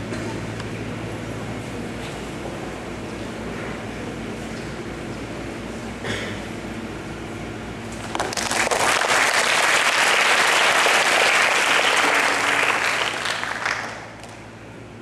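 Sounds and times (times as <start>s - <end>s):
audience applauding: 8.0s - 14.5s.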